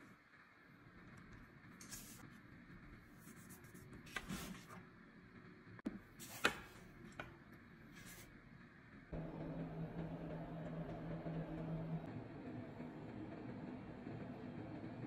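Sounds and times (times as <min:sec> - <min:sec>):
steady low hum: 0:05.8 - 0:15.0.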